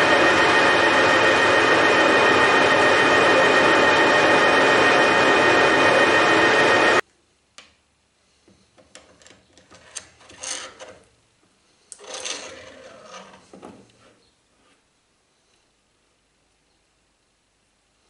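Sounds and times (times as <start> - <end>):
loud rushing noise: 0.0 - 7.0.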